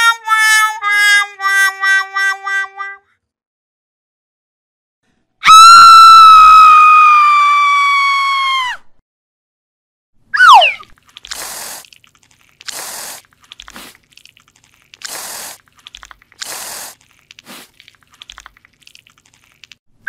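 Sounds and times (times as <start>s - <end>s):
faint crackles: 10.9s - 19.8s
aerosol spray can hissing: 11.2s - 11.9s, 12.5s - 14.0s, 14.8s - 17.8s.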